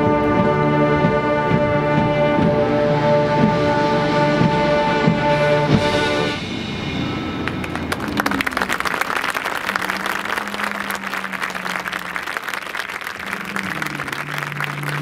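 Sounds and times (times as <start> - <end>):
marching band chord: 0.0 - 15.0
audience applause: 7.4 - 15.0.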